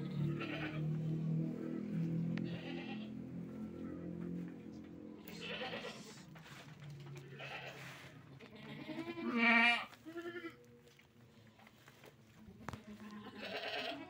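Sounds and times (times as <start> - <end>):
goats bleating: 0.0 - 4.1, 5.2 - 6.4, 7.0 - 10.6, 12.5 - 14.0.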